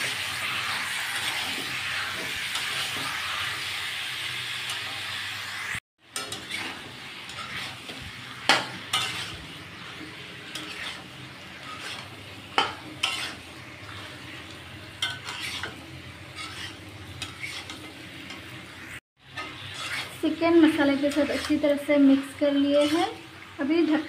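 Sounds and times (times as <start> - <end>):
spatula scraping pan: 0.0 - 3.5, 6.1 - 23.5
food sizzling in oil: 0.0 - 24.0.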